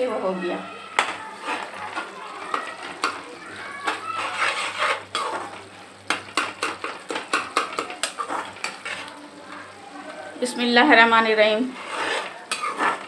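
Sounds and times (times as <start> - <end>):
spoon scraping metal pan: 0.8 - 9.2, 11.0 - 13.0
spoon clinking against pan: 6.1 - 8.9.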